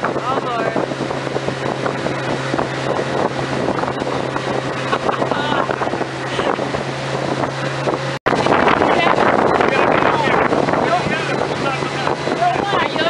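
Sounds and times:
boat engine humming: 0.0 - 13.0
wind and water rushing: 0.0 - 13.0.

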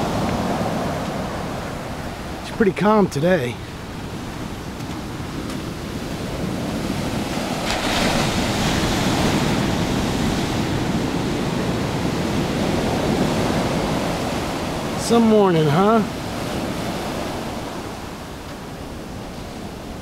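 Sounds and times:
small waves breaking on sand: 0.0 - 20.0.

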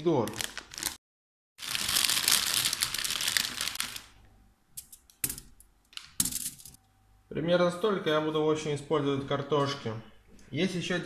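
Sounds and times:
plastic bag crinkling: 0.2 - 1.0, 1.6 - 4.2.

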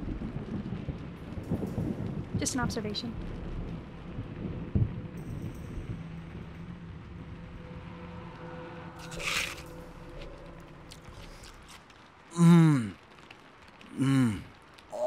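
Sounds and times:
man humming mmm: 12.3 - 13.0, 13.9 - 15.0.

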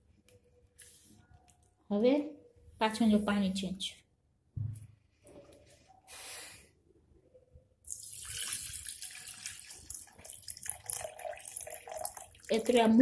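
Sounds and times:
water pouring into steel jar: 7.9 - 13.0.

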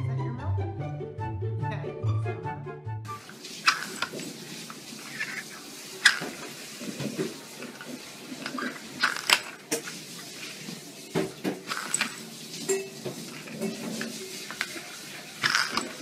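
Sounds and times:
plastic lids clicking on wooden floor: 13.5 - 16.0.

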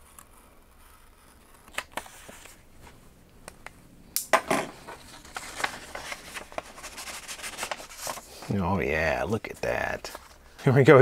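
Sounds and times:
paper rustling: 0.8 - 3.0, 4.6 - 8.6.

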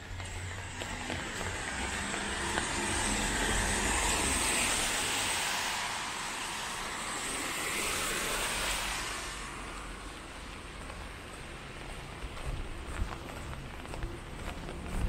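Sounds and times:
car tyres hissing on wet road: 0.4 - 12.1
light rain: 2.3 - 12.3.

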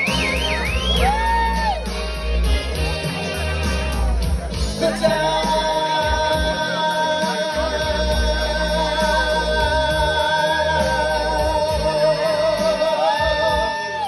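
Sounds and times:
backing track with pulsing bass: 0.0 - 14.0
man singing into a microphone: 4.7 - 14.0.

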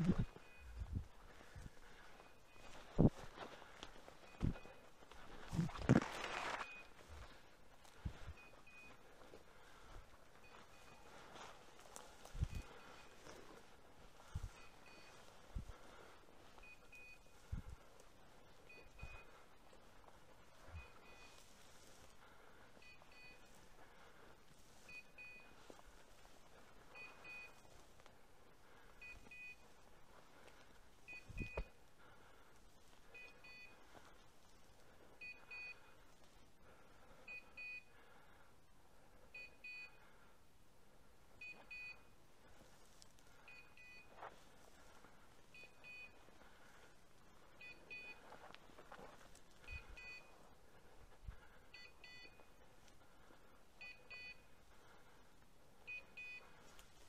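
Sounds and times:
electronic collar beeps: 0.0 - 3.3, 4.2 - 7.3, 8.1 - 9.1, 10.4 - 11.2, 12.3 - 13.6, 14.2 - 15.7, 16.6 - 17.8, 18.6 - 19.4, 20.6 - 21.5, 22.8 - 23.6, 24.8 - 25.6, 26.9 - 27.7, 29.0 - 29.7, 31.1 - 31.8, 33.1 - 33.8, 35.2 - 35.9, 37.3 - 37.9, 39.3 - 40.0, 41.4 - 42.1, 43.5 - 44.2, 45.5 - 46.2, 47.6 - 48.3, 49.6 - 50.4, 51.7 - 52.6, 53.8 - 54.6, 55.8 - 56.6
footsteps through dry bracken: 0.0 - 37.2, 41.6 - 53.7.

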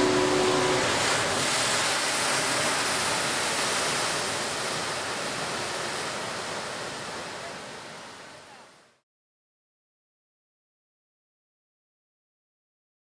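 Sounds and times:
surf breaking on rocks: 0.0 - 8.2.

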